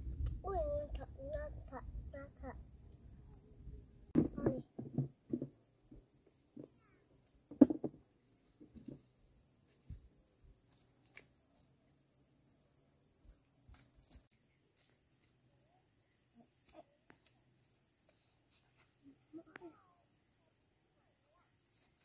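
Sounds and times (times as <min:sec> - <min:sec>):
insects droning: 0:00.0 - 0:22.0
loud thump: 0:04.1 - 0:05.5.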